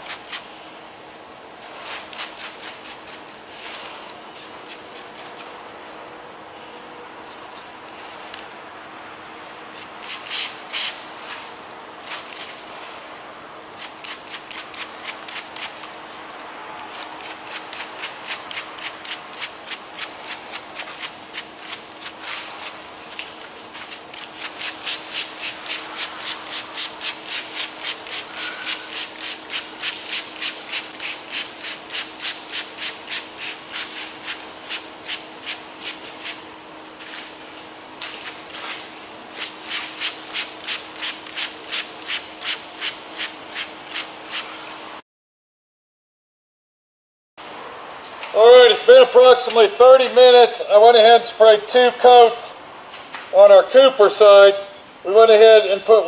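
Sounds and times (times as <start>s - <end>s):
spray bottle squirting: 0.0s - 0.5s, 1.8s - 3.2s, 9.8s - 11.0s, 12.0s - 12.6s, 13.8s - 16.3s, 16.9s - 36.4s, 38.0s - 44.5s.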